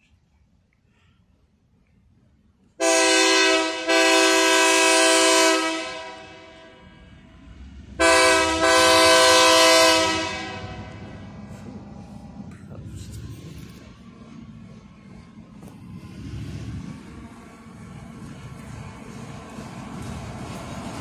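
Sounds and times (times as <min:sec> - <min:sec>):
locomotive air horn blasts: 0:02.8 - 0:06.9, 0:08.0 - 0:11.1
locomotive rumble: 0:02.8 - 0:21.0.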